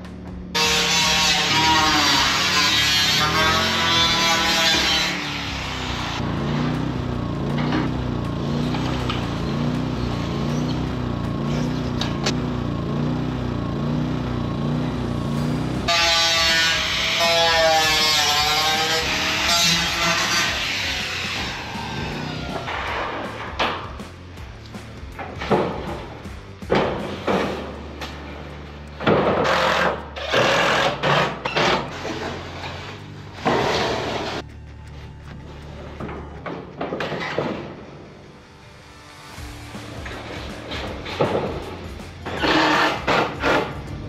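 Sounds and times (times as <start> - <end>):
power tool cutting steel sheet: 0.5 - 24.0, 28.9 - 34.4, 38.9 - 44.0
small engine pulsing: 5.2 - 17.6.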